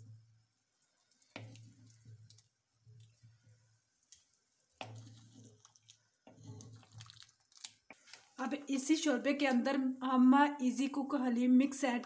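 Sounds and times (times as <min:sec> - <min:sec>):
broth dripping: 0:00.0 - 0:08.4.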